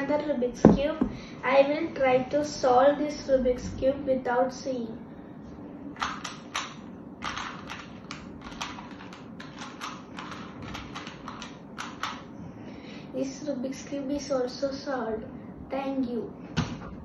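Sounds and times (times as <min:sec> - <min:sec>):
puzzle cube plastic clicks: 0:06.0 - 0:12.3.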